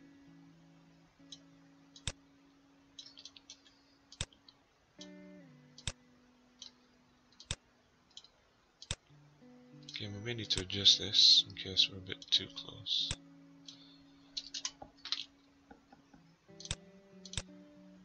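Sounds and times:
acoustic guitar background music: 0:00.0 - 0:06.9, 0:08.9 - 0:18.0
computer mouse clicks: 0:01.3 - 0:02.2, 0:03.0 - 0:05.2, 0:05.8 - 0:06.0, 0:06.6 - 0:09.0, 0:14.4 - 0:16.0, 0:16.6 - 0:17.5.

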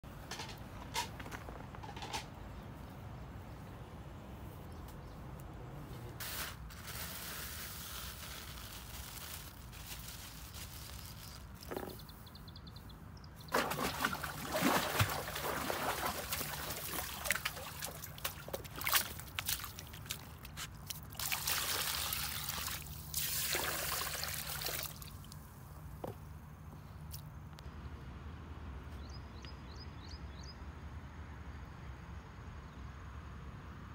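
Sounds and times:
water splashing into bowl: 0:13.5 - 0:20.4.

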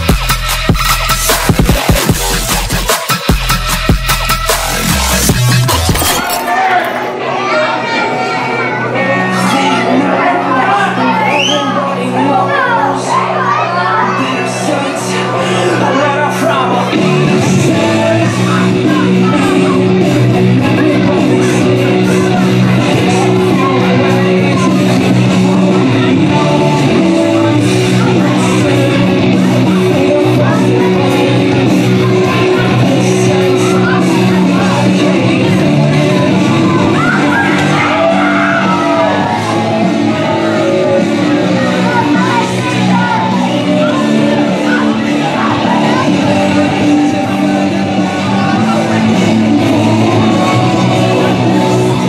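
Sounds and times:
rock music with guitar: 0:16.6 - 0:52.0.

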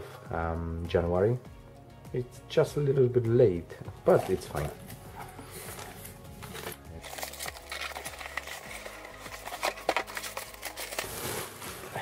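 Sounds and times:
cardboard carton being opened: 0:04.1 - 0:12.0
plastic crinkling and rustling: 0:04.1 - 0:12.0.

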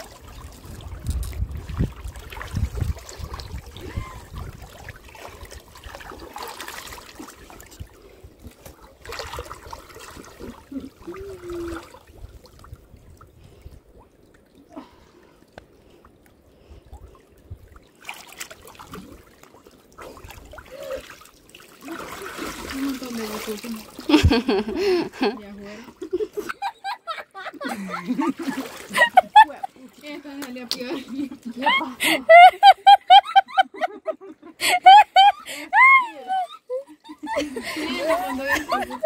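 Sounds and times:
river water splashing: 0:00.0 - 0:16.5, 0:17.2 - 0:26.5, 0:27.5 - 0:32.3.

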